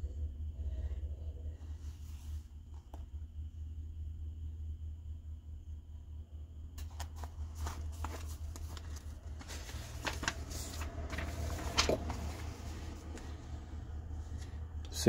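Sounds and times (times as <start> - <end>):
low hum: 0.0 - 15.0
paper pages rustling: 6.8 - 13.6.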